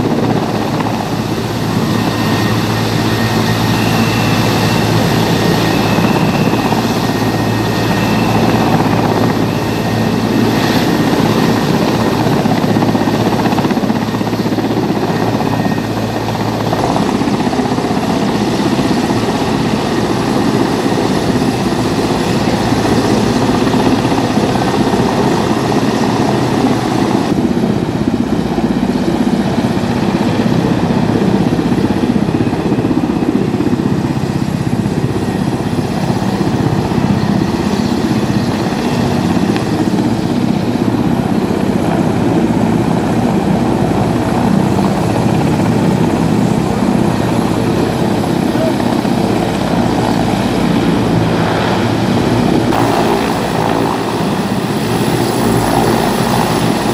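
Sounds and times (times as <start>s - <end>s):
helicopter rotor and turbine noise: 0.0s - 56.9s.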